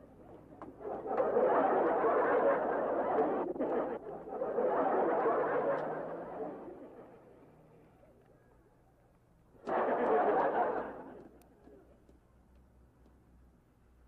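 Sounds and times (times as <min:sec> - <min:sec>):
studio audience laughter: 0:04.5 - 0:06.6, 0:09.6 - 0:11.3.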